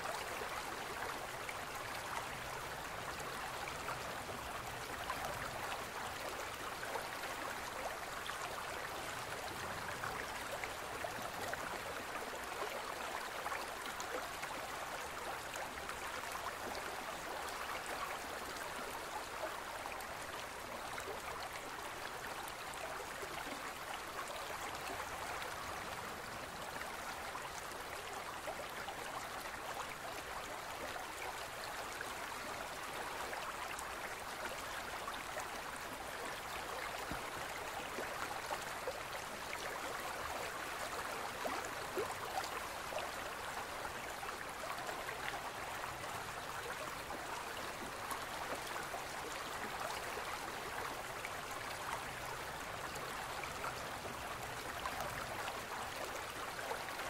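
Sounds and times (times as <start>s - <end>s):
stream babbling: 0.0s - 57.0s.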